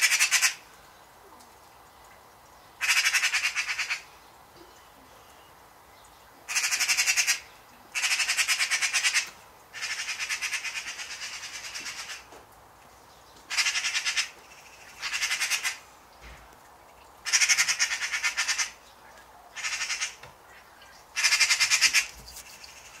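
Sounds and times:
magpies rattling chatter: 13.5s - 15.8s, 17.3s - 18.8s, 19.5s - 23.0s.

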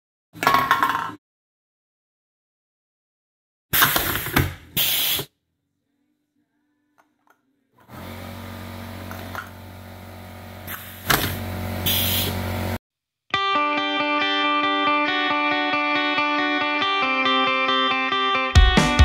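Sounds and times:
air hissing out: 3.8s - 5.3s, 10.7s - 12.8s
can crusher crushing can: 7.9s - 12.4s
steady machine hum: 7.9s - 12.8s.

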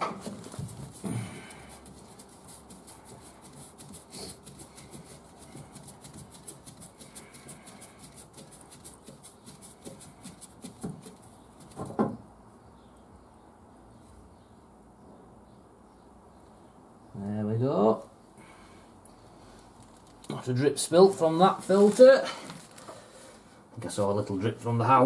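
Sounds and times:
glove rubbing on metal canister: 0.0s - 11.8s, 21.1s - 22.4s
fast faint ticking: 0.6s - 11.8s.

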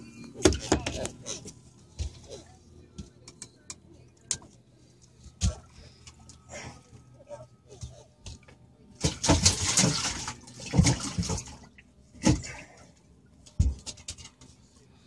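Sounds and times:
fish splashing in water: 9.0s - 12.5s.

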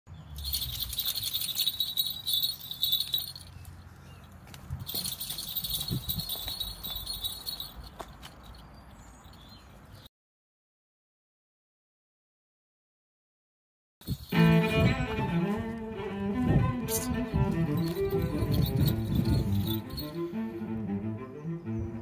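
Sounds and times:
light metallic jingling: 0.3s - 10.0s, 14.0s - 14.6s, 17.7s - 20.4s.

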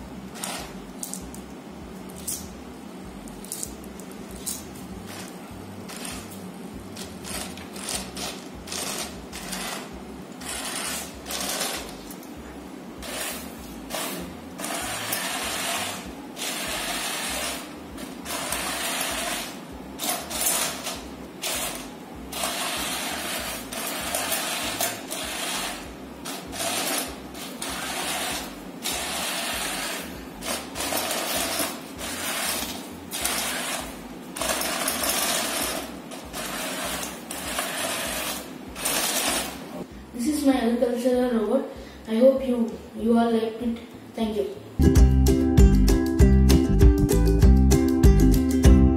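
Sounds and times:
small motors and servos whirring: 7.3s - 11.9s, 26.5s - 30.2s.

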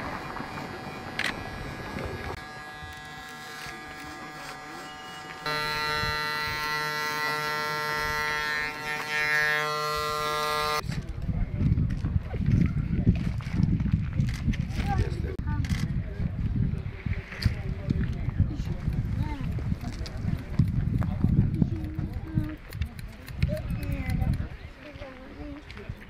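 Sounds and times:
electric hair clipper buzzing: 0.0s - 10.8s.

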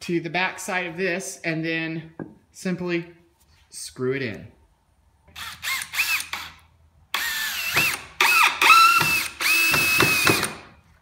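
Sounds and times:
cordless drill driving screws: 5.4s - 10.7s.

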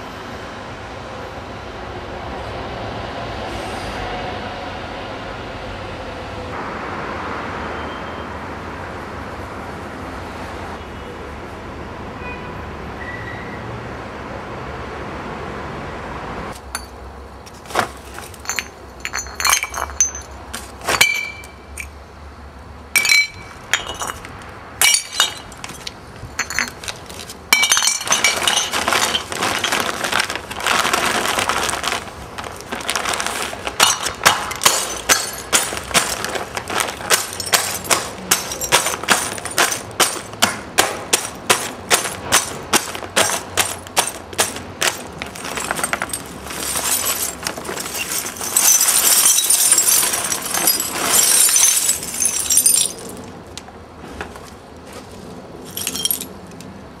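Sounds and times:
traffic rumble: 13.7s - 57.0s
glass breaking and crunching: 17.7s - 21.9s, 23.0s - 53.2s, 55.7s - 56.3s.

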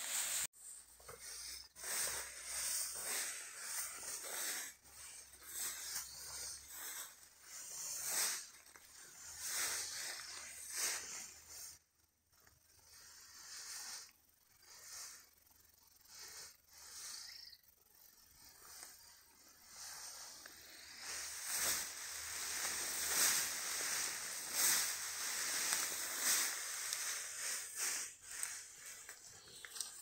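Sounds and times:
footsteps swishing through grass: 0.0s - 0.5s, 19.9s - 29.6s.

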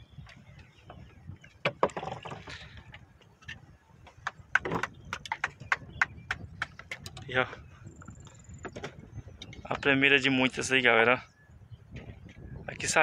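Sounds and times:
knocks on wooden hull: 1.6s - 2.4s, 4.2s - 7.1s.

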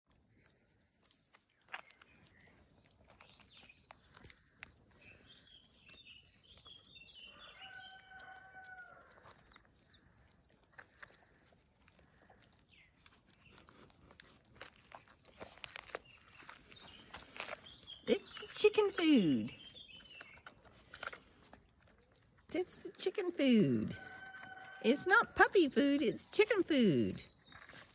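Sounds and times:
birds chirping: 0.2s - 27.9s
long steady bird call: 1.5s - 21.5s.

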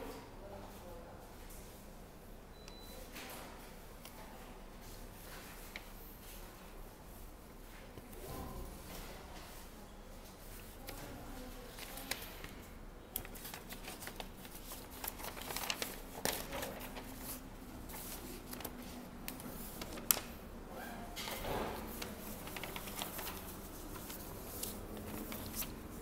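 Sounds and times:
paper rustling: 10.6s - 20.5s, 21.2s - 26.0s
pages turning: 13.2s - 20.4s, 21.2s - 26.0s.

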